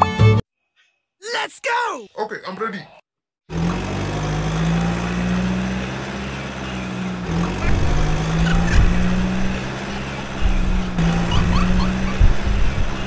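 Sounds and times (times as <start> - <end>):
tractor engine running: 3.5 - 13.0.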